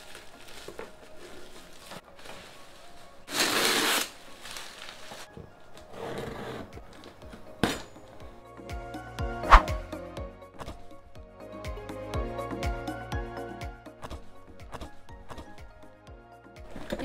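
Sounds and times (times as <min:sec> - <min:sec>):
plastic wrap rustling and tearing: 0:00.0 - 0:05.9
soft background music: 0:00.0 - 0:17.0.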